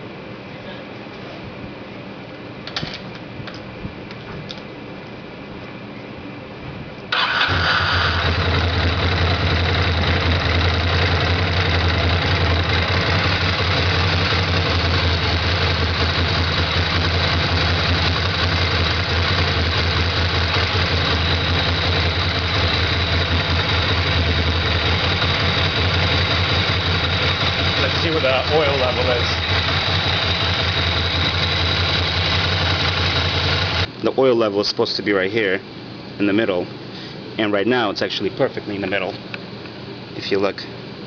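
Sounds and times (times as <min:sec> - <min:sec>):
motorcycle engine starting and idling: 0:07.1 - 0:33.9.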